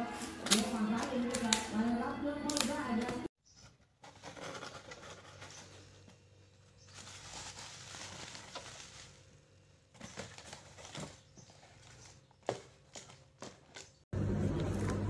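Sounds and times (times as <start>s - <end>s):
plastic packaging rustling: 6.6s - 14.0s.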